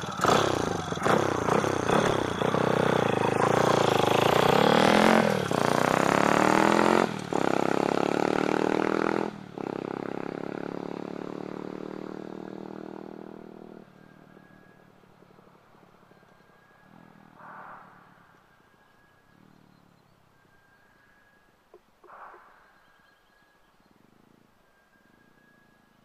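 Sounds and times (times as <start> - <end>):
minibike engine accelerating: 0.0 - 20.2.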